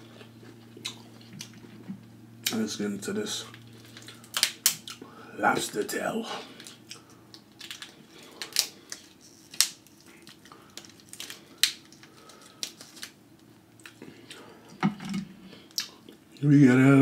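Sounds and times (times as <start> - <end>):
lobster shell cracking: 3.8 - 5.0, 6.6 - 16.0.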